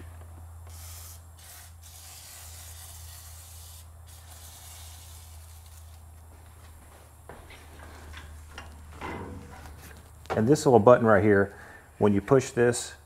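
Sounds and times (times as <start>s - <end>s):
steady low hum: 0.0s - 13.0s
aerosol spray hissing: 0.7s - 5.9s.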